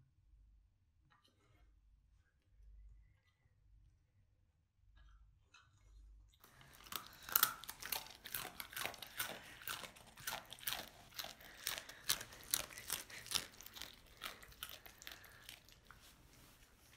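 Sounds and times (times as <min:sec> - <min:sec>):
dog crunching dry noodles: 0:06.4 - 0:16.9.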